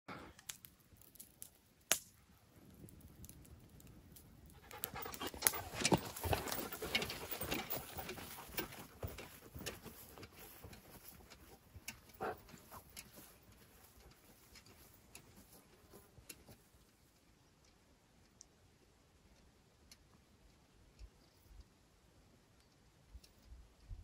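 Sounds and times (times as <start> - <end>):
dog panting: 4.5 - 13.8.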